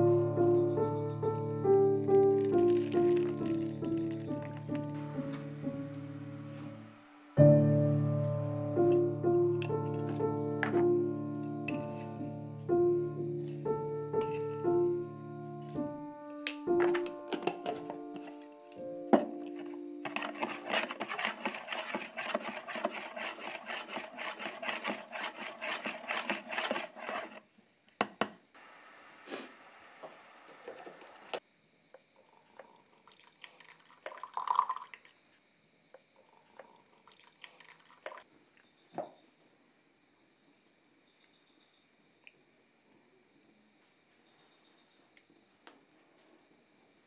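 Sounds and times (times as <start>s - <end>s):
spoon stirring liquid in jug: 2.1s - 4.8s, 19.5s - 27.4s, 32.6s - 35.0s, 36.6s - 38.2s
knocks and clinks of kitchen things: 16.4s - 18.4s, 19.1s - 21.2s.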